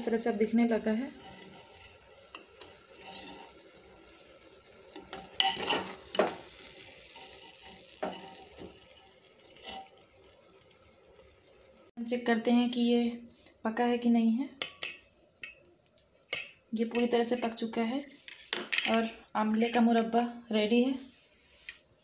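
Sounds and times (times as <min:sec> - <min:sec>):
syrup sizzling: 0:00.0 - 0:20.1
metal ladle clinking and scraping: 0:05.0 - 0:08.5, 0:16.3 - 0:19.8.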